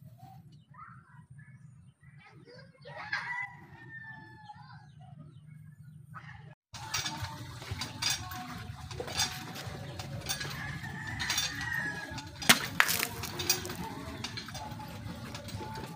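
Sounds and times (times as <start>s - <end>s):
chickens: 8.4s - 15.9s.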